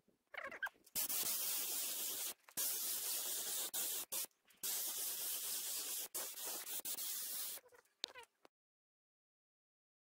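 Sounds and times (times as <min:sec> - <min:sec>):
spray hiss: 0:01.0 - 0:07.6.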